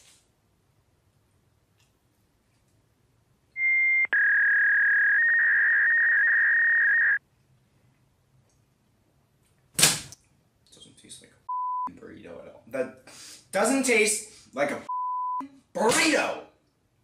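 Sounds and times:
long steady electronic tone: 3.6s - 7.2s.

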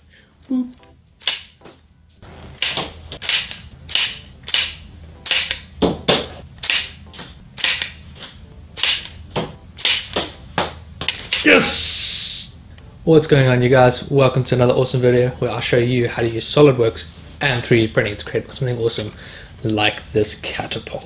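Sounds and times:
sharp cracks: 6.6s - 7.0s, 7.6s - 8.0s, 8.8s - 9.2s.

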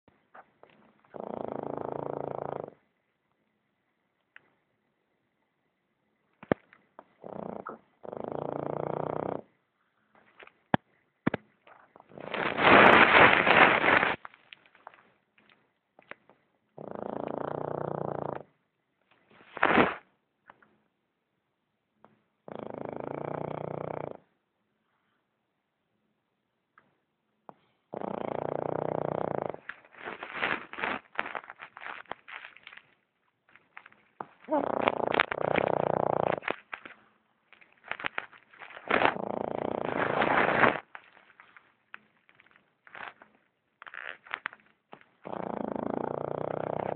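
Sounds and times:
dog snoring: 0.6s - 3.0s, 7.0s - 9.6s, 16.8s - 18.6s, 22.0s - 24.4s, 27.5s - 31.1s, 34.2s - 37.0s, 38.0s - 41.6s, 44.5s - 46.9s.

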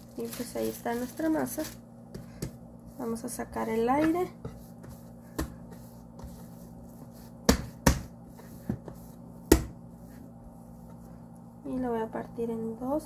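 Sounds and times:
dough slapped on board thumps: 5.3s - 5.7s, 7.4s - 9.8s.

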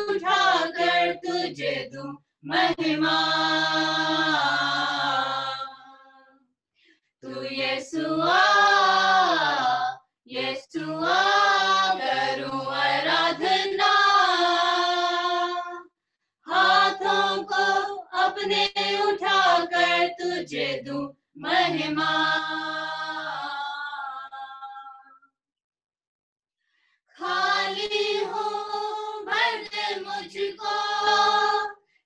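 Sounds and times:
people singing without accompaniment: 0.0s - 6.2s, 7.2s - 15.9s, 16.5s - 25.0s, 27.2s - 31.9s.

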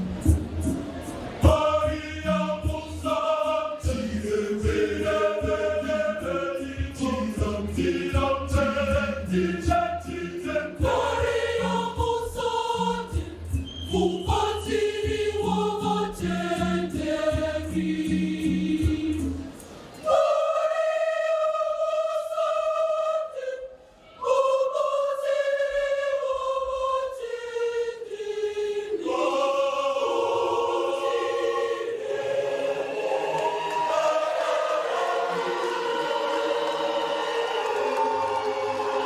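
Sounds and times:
steady rhythmic beat: 0.0s - 20.9s
choir singing in harmony: 0.0s - 39.0s.

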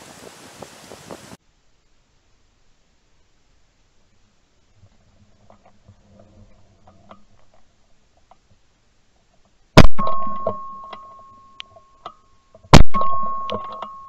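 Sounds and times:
shotgun shots: 9.8s - 10.5s, 12.7s - 13.5s
high ringing tone: 9.9s - 14.0s.

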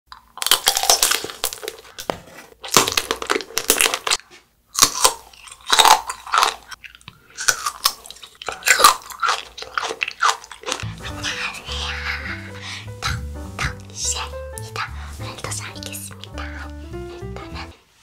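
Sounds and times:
candy shell crunching between teeth: 0.1s - 2.0s, 2.6s - 11.0s.

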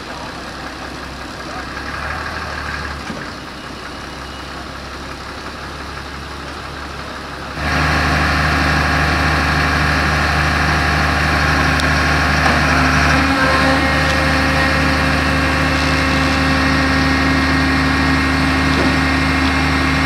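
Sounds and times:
diesel engines idling: 0.0s - 20.0s.

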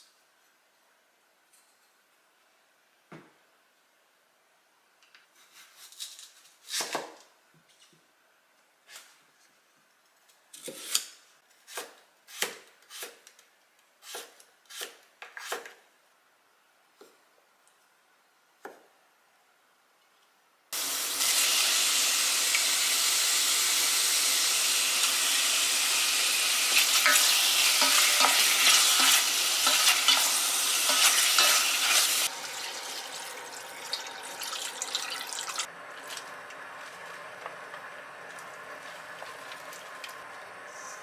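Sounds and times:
food sizzling in a hot pan: 20.8s - 35.7s.

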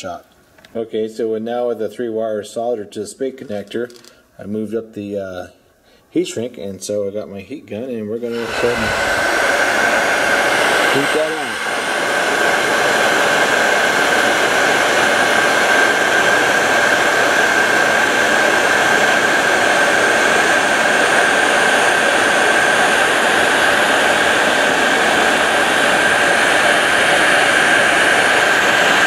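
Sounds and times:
heat gun blowing with whine: 8.2s - 29.0s.

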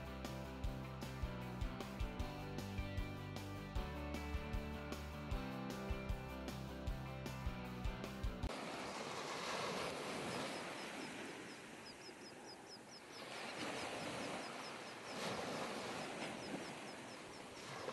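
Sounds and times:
small waves washing on sand: 8.5s - 17.9s.

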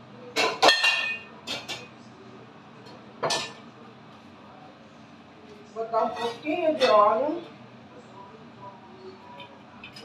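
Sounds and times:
cookware and utensils clattering: 0.3s - 2.0s, 2.8s - 3.7s, 5.8s - 7.4s, 9.2s - 10.0s.

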